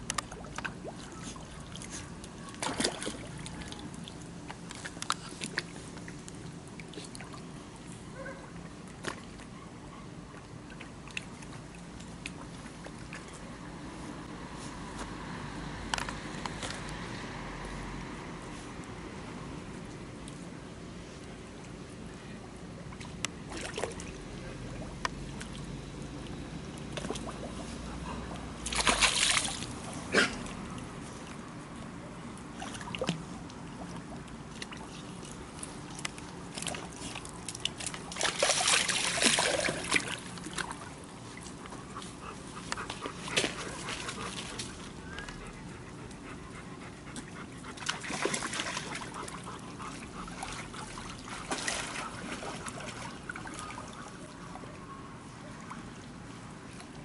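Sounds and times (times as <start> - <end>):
dog splashing in water: 0.4 - 3.8, 28.6 - 30.7, 35.5 - 41.0, 42.8 - 44.9, 47.7 - 54.2.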